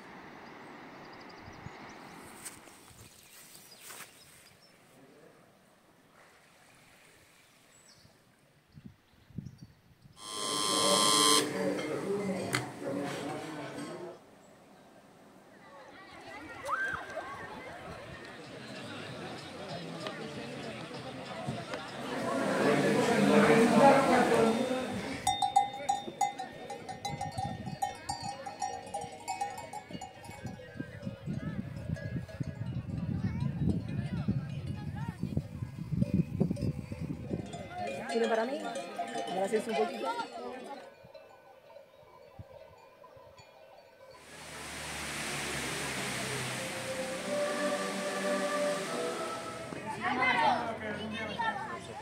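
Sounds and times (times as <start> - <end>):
low steady outdoor hiss: 10.1 - 16.2, 44.1 - 52.0
livestock bells clanking: 23.8 - 35.0, 36.1 - 45.0.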